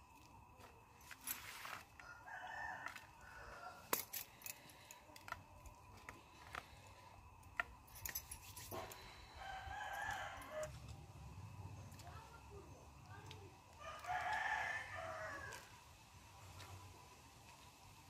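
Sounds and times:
rooster crowing: 0:02.0 - 0:04.1, 0:09.0 - 0:10.9, 0:13.8 - 0:15.8.

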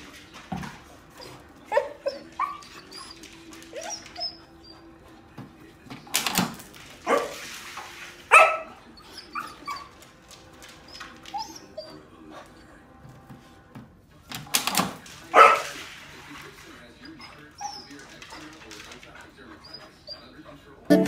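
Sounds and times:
dog barking: 0:01.7 - 0:02.6, 0:07.0 - 0:07.4, 0:08.3 - 0:08.8, 0:15.3 - 0:15.7.

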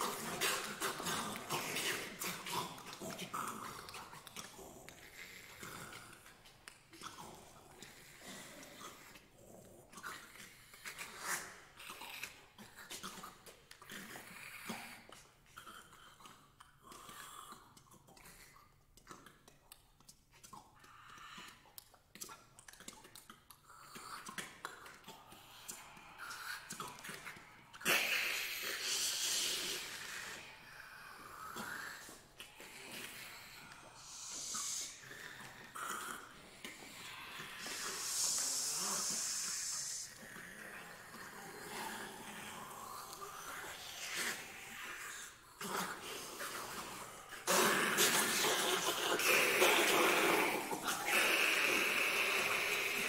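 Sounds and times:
breathy vocal hisses: 0:00.0 - 0:06.4, 0:20.7 - 0:21.7, 0:23.8 - 0:53.0
vocal clicks: 0:15.1 - 0:53.0
voices hissing: 0:25.7 - 0:35.7, 0:36.6 - 0:41.0.

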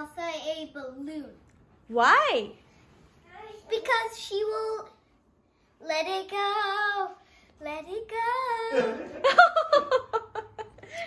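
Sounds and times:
boy singing: 0:05.8 - 0:09.2.

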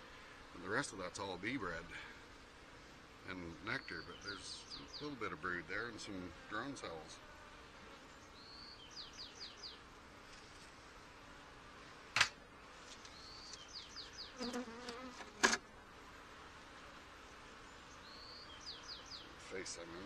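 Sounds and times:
bees buzzing: 0:00.0 - 0:20.0
bird singing: 0:03.5 - 0:05.2, 0:08.1 - 0:09.8, 0:13.0 - 0:14.6, 0:17.7 - 0:19.3.

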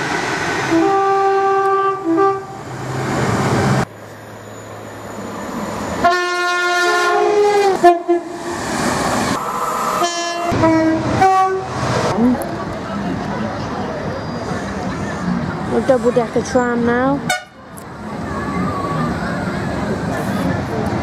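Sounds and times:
train running noise: 0:00.0 - 0:21.0
two-tone train horn: 0:00.7 - 0:02.6, 0:06.0 - 0:08.4, 0:10.0 - 0:11.7, 0:17.3 - 0:17.6.

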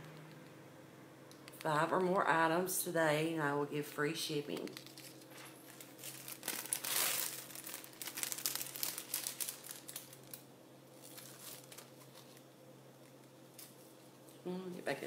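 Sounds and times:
plastic packaging crinkling: 0:04.5 - 0:14.0.

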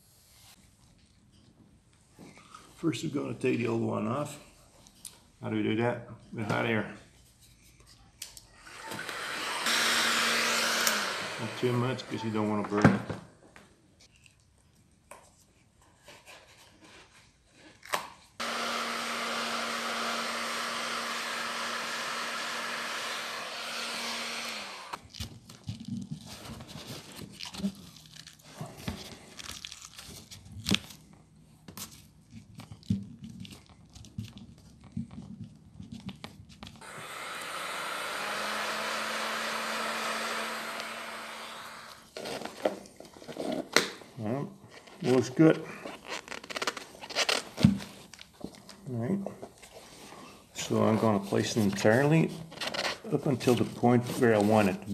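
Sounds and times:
heat gun blowing: 0:08.6 - 0:12.6, 0:18.4 - 0:25.0, 0:36.8 - 0:42.2
seal crackling and tearing: 0:29.2 - 0:31.0.

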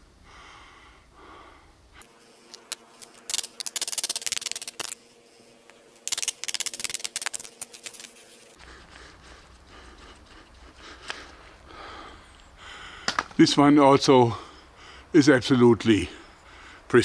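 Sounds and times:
wood splitting and crackling: 0:13.0 - 0:13.4.

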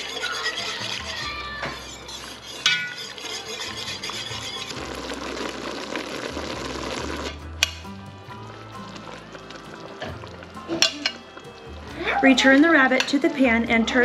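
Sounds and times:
sauce bubbling in a pot: 0:01.9 - 0:13.4
metal clink on pot: 0:02.6 - 0:04.4, 0:10.7 - 0:11.2, 0:12.9 - 0:13.3.

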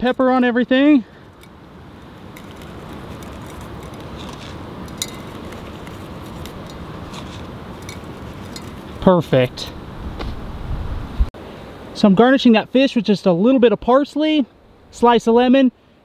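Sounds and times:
rushing background noise: 0:00.9 - 0:12.0.

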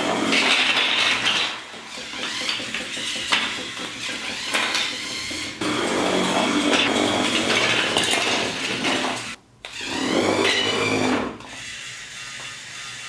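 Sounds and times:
toy electric motor whirring: 0:00.0 - 0:13.0.

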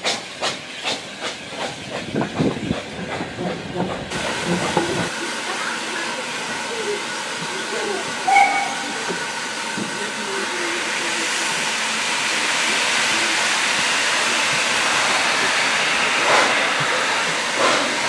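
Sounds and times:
steam train hissing and running: 0:00.0 - 0:18.0
short high whistle note: 0:08.3 - 0:08.9.

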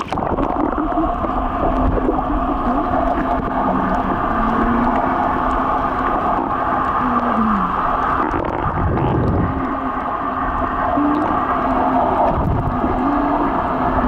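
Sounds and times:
boat engine drone underwater: 0:00.0 - 0:14.0
underwater water noise: 0:00.0 - 0:14.0.

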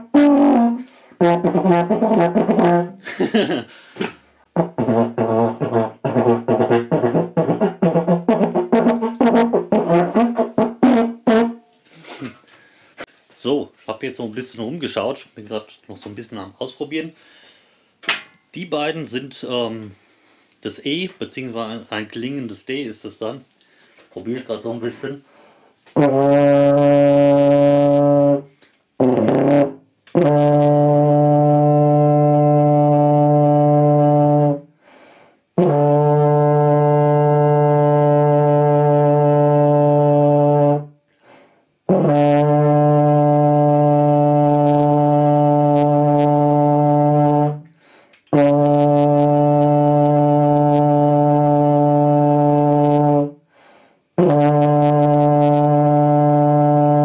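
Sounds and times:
tenor horn long low notes: 0:00.0 - 0:03.0, 0:04.6 - 0:11.6, 0:26.0 - 0:34.7, 0:35.6 - 0:40.9, 0:41.9 - 0:47.7, 0:48.3 - 0:53.4, 0:54.2 - 0:57.0.

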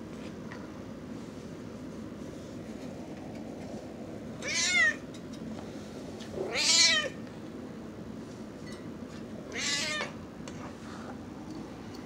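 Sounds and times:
cat meowing: 0:04.4 - 0:05.0, 0:06.4 - 0:07.2, 0:09.5 - 0:10.2.

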